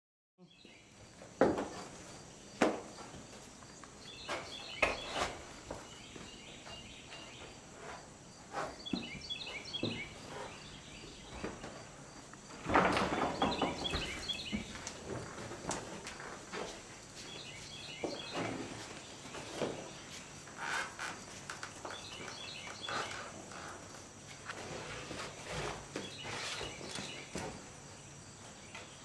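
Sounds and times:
birds chirping: 2.3s - 15.4s, 17.1s - 23.8s, 24.8s - 29.0s
knocks and scuffs on wooden poles: 2.6s - 3.5s, 4.2s - 10.6s.

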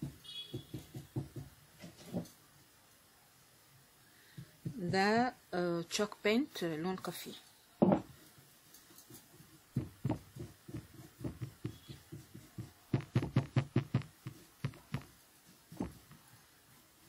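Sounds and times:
paintbrush dabbing on wood: 8.4s - 16.4s.

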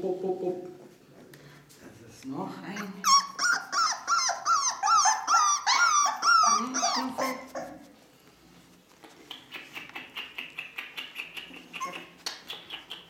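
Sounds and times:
puppy whining: 2.7s - 8.0s, 11.4s - 12.5s.

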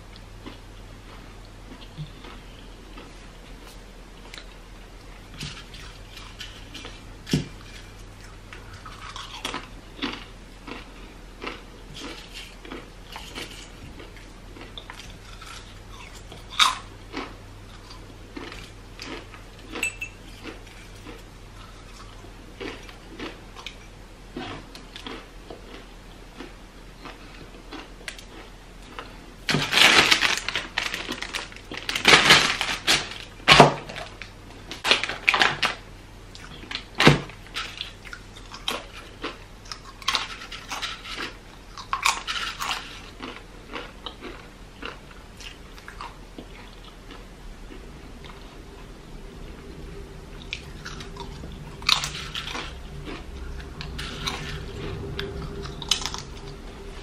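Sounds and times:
crackling crunches: 0.1s - 57.0s
chips crunching: 5.3s - 23.8s, 24.4s - 25.8s, 26.4s - 35.8s, 36.4s - 48.9s, 50.4s - 57.0s.

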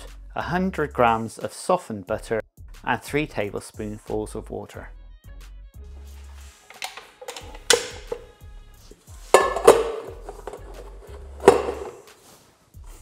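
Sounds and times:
metal bowl clanking against mixer: 9.3s - 10.7s, 11.3s - 12.0s.

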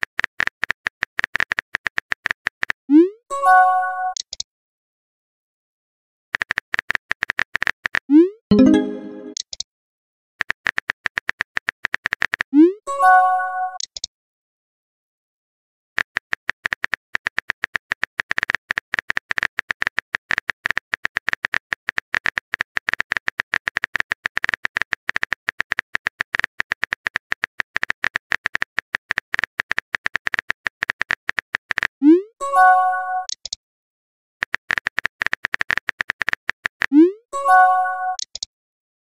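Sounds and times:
keyboard typing clicks: 4.1s - 4.4s, 6.4s - 9.6s, 13.8s - 14.1s, 33.2s - 33.6s, 34.4s - 38.5s.

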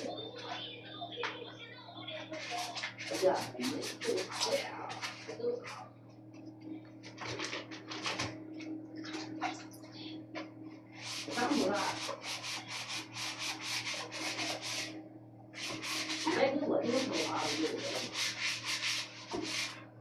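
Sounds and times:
faint steady hum: 0.0s - 20.0s
rough rubbing strokes by hand: 11.0s - 14.9s, 15.6s - 19.8s.

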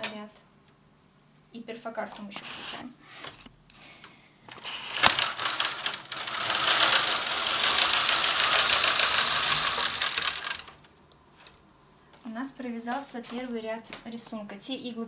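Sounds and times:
knitting machine carriage click: 4.5s - 10.8s
knitting machine clattering: 4.5s - 10.8s.

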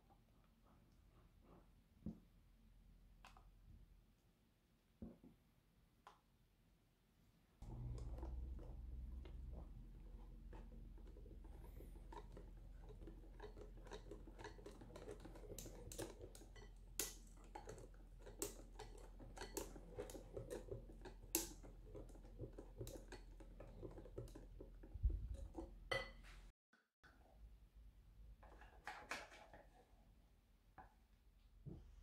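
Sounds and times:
whisk swishing chocolate: 7.6s - 25.9s.

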